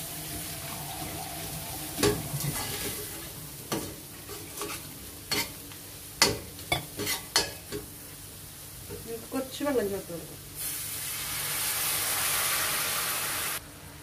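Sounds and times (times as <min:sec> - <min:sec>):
frying sizzle: 0:00.0 - 0:14.0
spoon scraping steel pan: 0:06.8 - 0:07.5.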